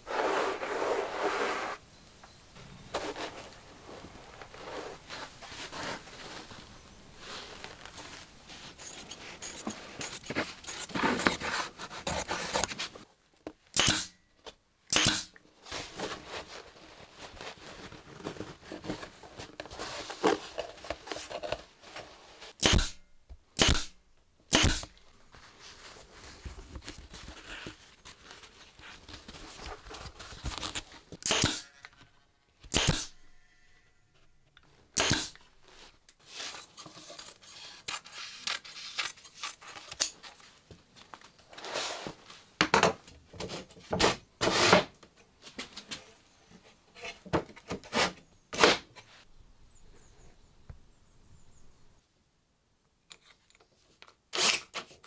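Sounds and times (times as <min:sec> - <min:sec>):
pneumatic staple gun firing: 0:13.8 - 0:14.2, 0:14.9 - 0:15.4, 0:22.6 - 0:23.0, 0:23.6 - 0:24.9, 0:31.2 - 0:31.7, 0:32.7 - 0:33.2, 0:35.0 - 0:35.4.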